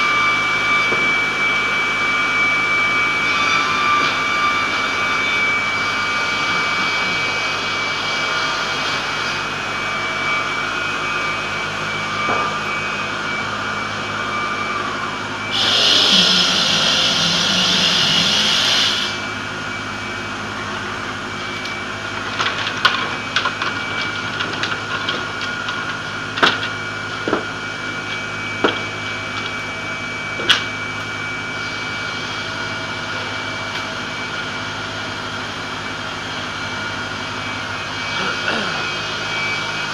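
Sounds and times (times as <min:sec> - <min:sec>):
circular saw whine: 0:00.0 - 0:39.9
dust extraction rushing: 0:10.4 - 0:19.7.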